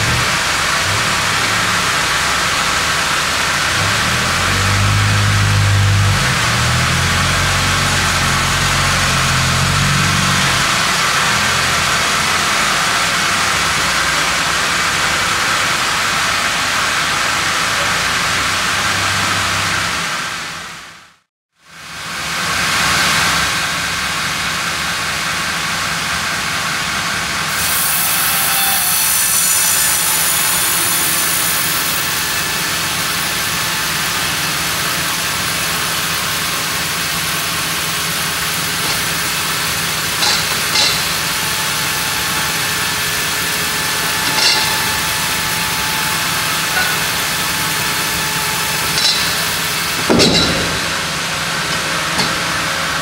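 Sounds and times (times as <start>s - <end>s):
band saw cutting wood: 0.0s - 13.5s, 27.5s - 53.0s
heavy knock: 50.0s - 51.1s.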